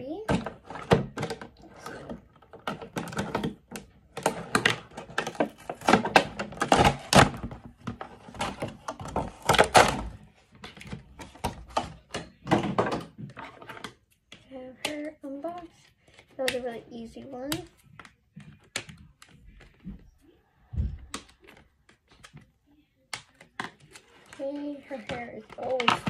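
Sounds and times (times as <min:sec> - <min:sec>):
plastic and cardboard crinkling: 0:00.0 - 0:26.0.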